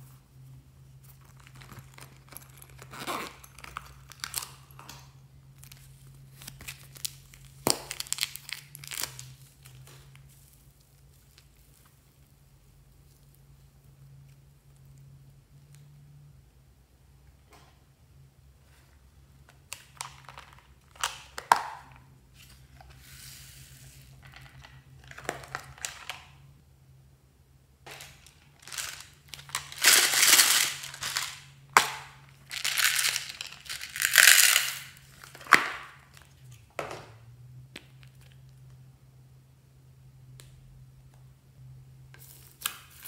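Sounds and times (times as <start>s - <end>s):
slime crackling and popping: 6.4s - 10.2s.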